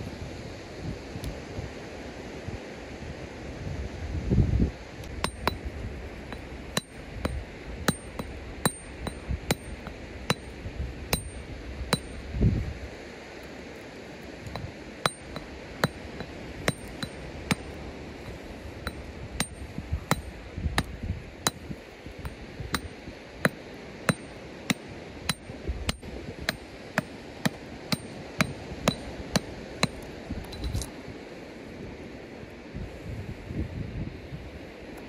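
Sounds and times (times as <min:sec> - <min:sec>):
hammer striking stone: 0:05.2 - 0:05.7, 0:06.3 - 0:12.2, 0:14.4 - 0:30.8.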